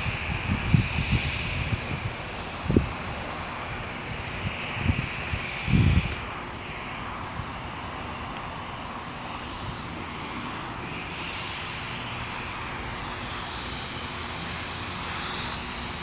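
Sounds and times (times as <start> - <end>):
aircraft engine drone: 0.0 - 16.0.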